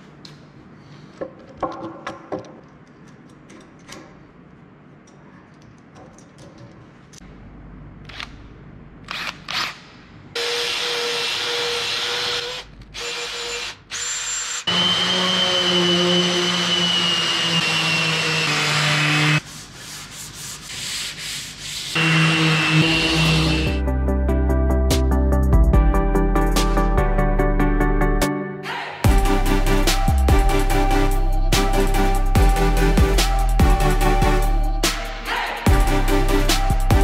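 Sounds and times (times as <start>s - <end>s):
sander running: 10.4s - 19.4s, 22.0s - 23.8s.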